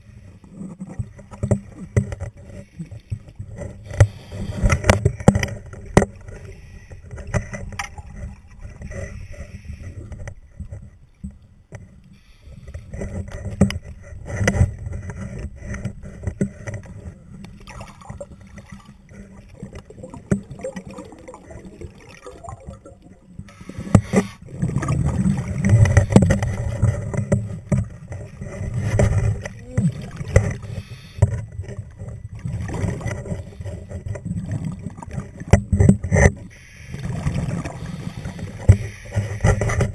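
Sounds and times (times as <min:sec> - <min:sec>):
underwater river current rushing: 0:00.0 - 0:39.9
clicks and knocks on camera: 0:03.1 - 0:09.1, 0:12.7 - 0:16.9, 0:25.6 - 0:32.2, 0:38.6 - 0:39.9.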